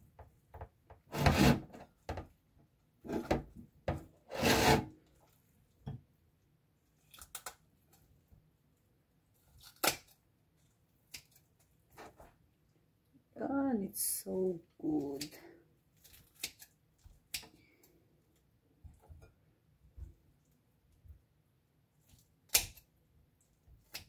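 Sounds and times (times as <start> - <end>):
meat tearing: 7.0 - 8.0, 9.4 - 11.6, 15.9 - 17.5
scissors cutting chicken: 16.1 - 17.5.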